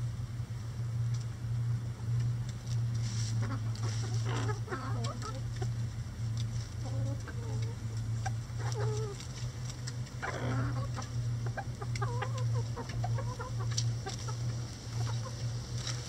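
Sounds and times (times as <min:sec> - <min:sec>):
steady low hum: 0:00.0 - 0:16.0
hens pecking cabbage taps: 0:02.2 - 0:16.0
hens clucking: 0:03.1 - 0:16.0
hen squawking: 0:10.2 - 0:15.4.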